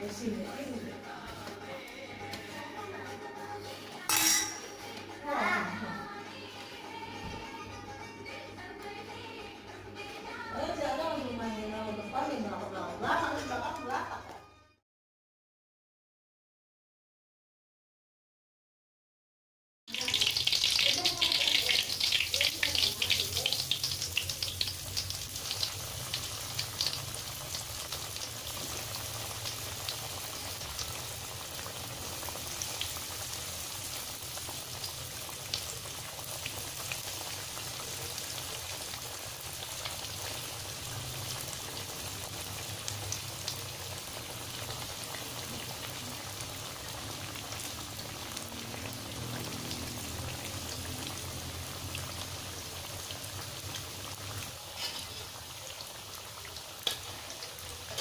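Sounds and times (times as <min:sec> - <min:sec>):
food deep-frying in oil: 0:19.9 - 0:58.0.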